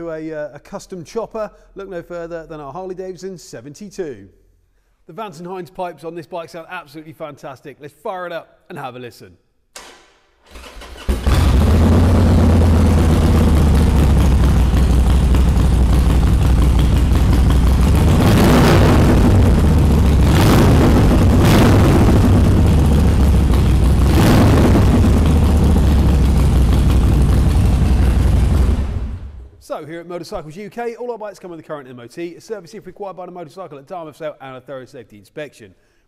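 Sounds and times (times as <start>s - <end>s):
engine revving: 10.6s - 29.5s
motorcycle engine idling: 11.2s - 29.5s.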